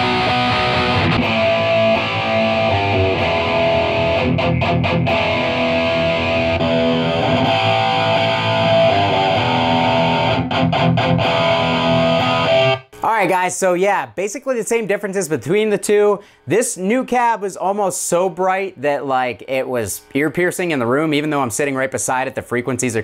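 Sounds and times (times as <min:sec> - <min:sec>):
overdriven electric guitar riff: 0:00.0 - 0:13.0.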